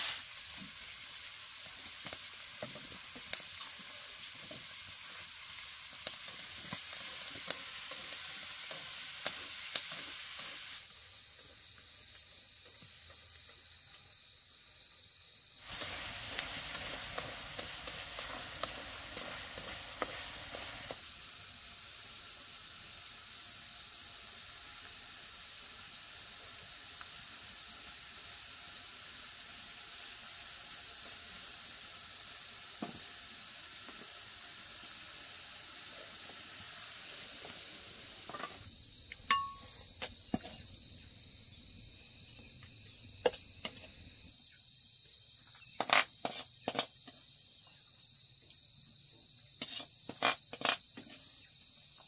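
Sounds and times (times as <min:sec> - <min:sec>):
soft hiss: 0:00.0 - 0:11.0, 0:15.6 - 0:44.3
insects singing: 0:00.0 - 0:52.0.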